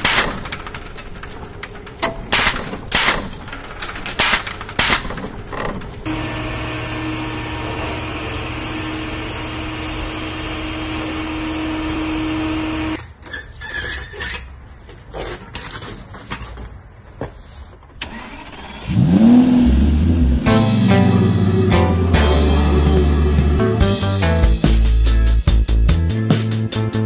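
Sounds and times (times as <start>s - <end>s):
metal clanks of floor jack: 0.0s - 5.9s
steady mechanical hum: 0.0s - 13.1s.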